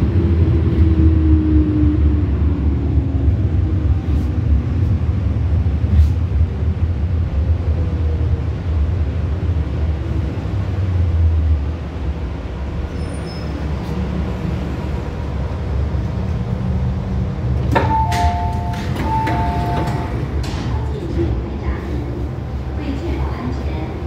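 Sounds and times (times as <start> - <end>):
train low rumble: 0.0 - 24.0
train doors sliding open: 17.2 - 22.3
two-tone door chime: 17.8 - 20.2.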